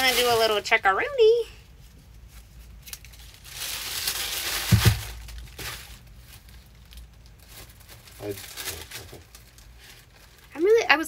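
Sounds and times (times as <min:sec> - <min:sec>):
paper rustling and crinkling: 0:02.3 - 0:10.8
thumps: 0:04.6 - 0:05.8.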